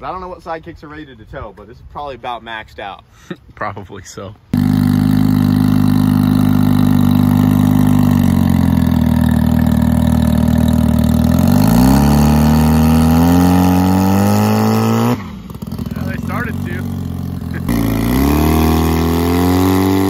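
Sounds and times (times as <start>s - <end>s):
car engine under load: 4.6s - 20.0s.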